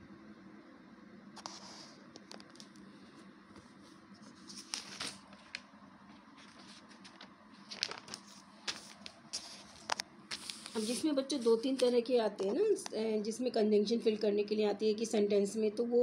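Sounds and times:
low steady hum: 0:00.0 - 0:16.0
paper pages rustling: 0:03.5 - 0:12.6.

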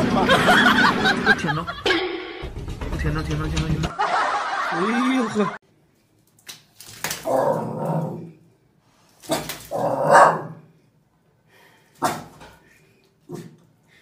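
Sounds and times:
fish flopping on tiled floor: 0:06.0 - 0:08.2, 0:09.0 - 0:09.9
dog barking: 0:09.3 - 0:10.7, 0:12.0 - 0:12.4.

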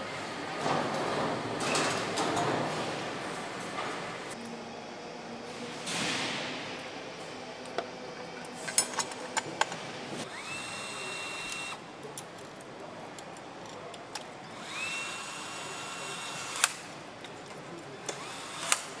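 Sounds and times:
power driver whining: 0:10.3 - 0:11.8.

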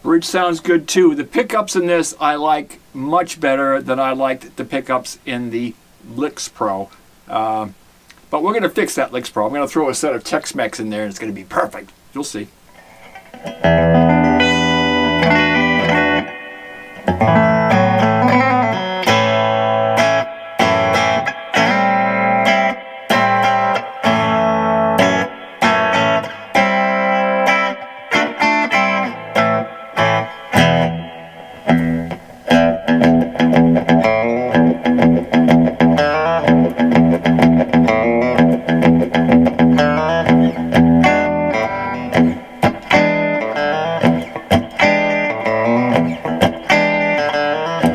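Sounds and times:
electric guitar chords and notes: 0:12.7 - 0:47.9.

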